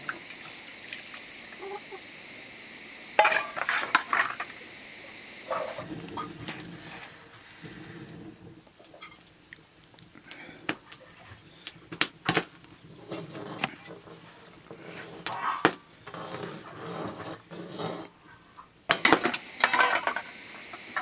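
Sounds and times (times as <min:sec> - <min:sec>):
metal pots and lids clattering: 0:03.2 - 0:04.5, 0:18.9 - 0:21.0
metal ladle scraping in wok: 0:12.8 - 0:18.2.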